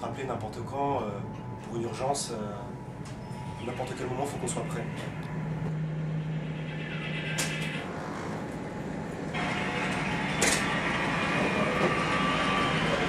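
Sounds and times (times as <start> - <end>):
low steady hum: 0.0 - 10.2
machinery and ventilation hiss: 0.0 - 13.0.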